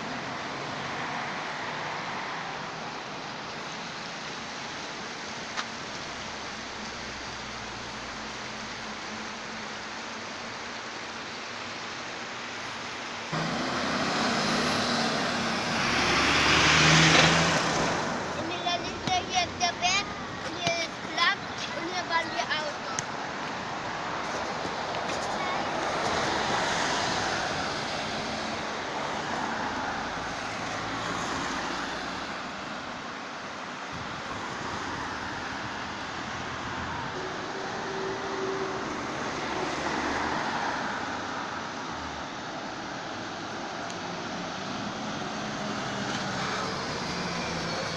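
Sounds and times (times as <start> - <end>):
background traffic hiss: 0.0 - 47.9
cars on road: 0.0 - 47.9
bus passing: 13.3 - 33.0, 34.2 - 47.9
lorry passing: 13.4 - 21.1.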